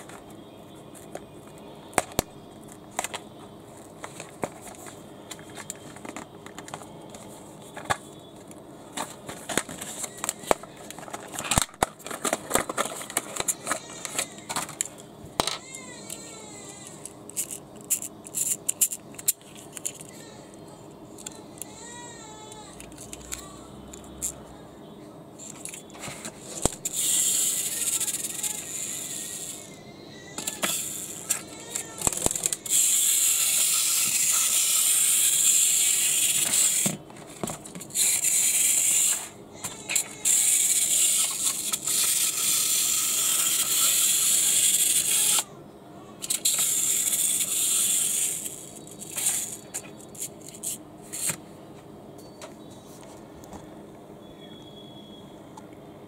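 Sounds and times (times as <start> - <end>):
toy car spring motor whirring: 9.3 - 20.5, 21.2 - 24.4, 25.4 - 45.6, 46.2 - 51.4.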